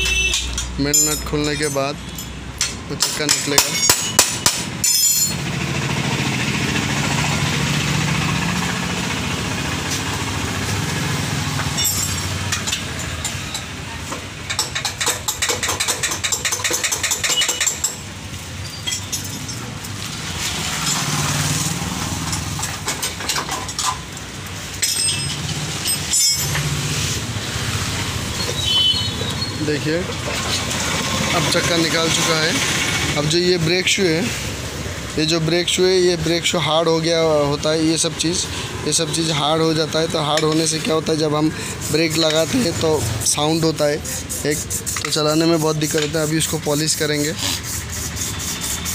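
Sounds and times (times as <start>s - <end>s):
hand tools clinking on metal: 0.0s - 5.5s, 11.6s - 21.2s, 22.2s - 26.9s, 39.6s - 44.3s
engine humming: 4.6s - 14.5s.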